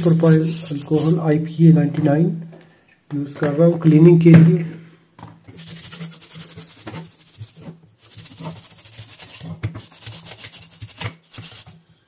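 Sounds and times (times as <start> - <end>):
brush scrubbing circuit board: 0.0 - 1.2, 5.5 - 11.8.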